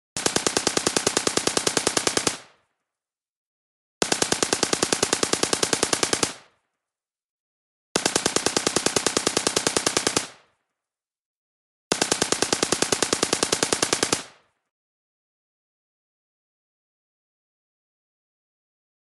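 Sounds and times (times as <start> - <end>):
rifle firing full automatic bursts: 0.2 - 2.5, 4.0 - 6.6, 8.0 - 10.6, 11.9 - 14.5.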